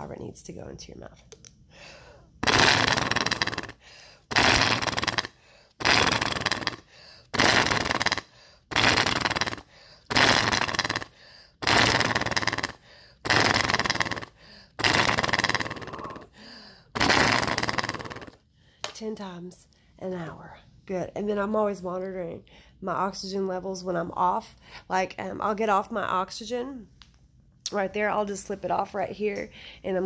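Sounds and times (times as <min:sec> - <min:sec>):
exhalations through rattling flutter valve: 0:01.8 - 0:18.4.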